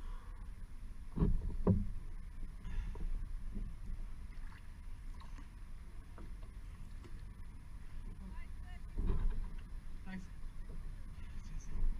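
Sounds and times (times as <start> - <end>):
low steady rumble: 0.0 - 11.9
water sloshing against hull: 0.0 - 11.9
paddle strokes in water: 1.1 - 8.3.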